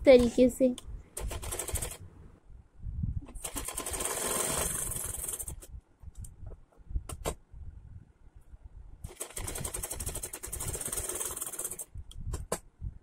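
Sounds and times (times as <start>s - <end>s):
sewing machine stitching: 1.2s - 2.0s, 3.4s - 5.6s, 9.1s - 11.9s.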